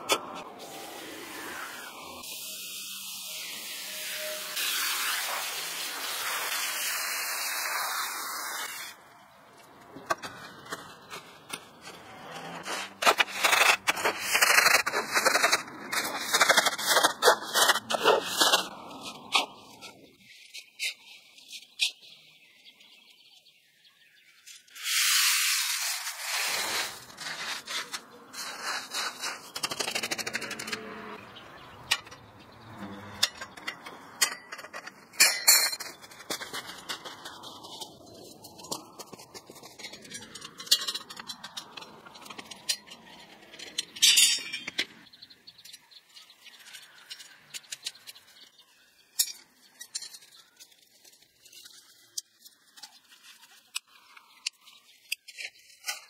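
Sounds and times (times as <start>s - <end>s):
metal rebar clinks and scrapes: 10.1s - 22.0s, 24.8s - 31.2s, 31.8s - 56.0s.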